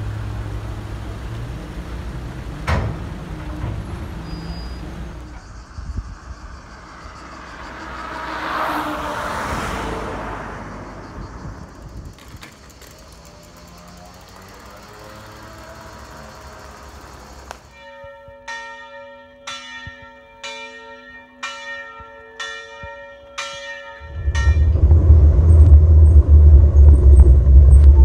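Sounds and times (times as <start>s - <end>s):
low rumble of traffic: 0.0s - 28.0s
vehicle passing whoosh: 4.8s - 12.1s, 24.0s - 28.0s.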